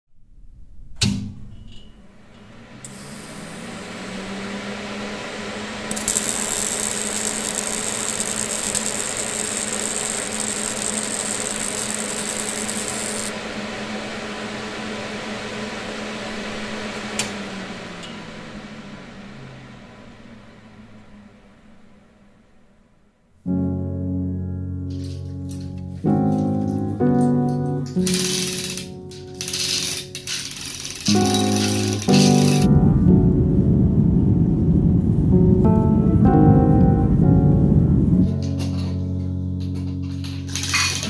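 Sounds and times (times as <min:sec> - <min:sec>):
power tool motor humming: 0:02.6 - 0:13.4, 0:28.0 - 0:32.7
loud hissing: 0:02.8 - 0:14.4, 0:28.0 - 0:32.7.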